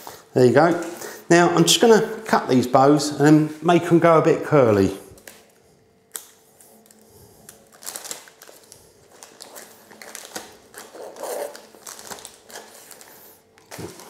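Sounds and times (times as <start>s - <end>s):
plastic bag crinkling: 6.2s - 14.0s.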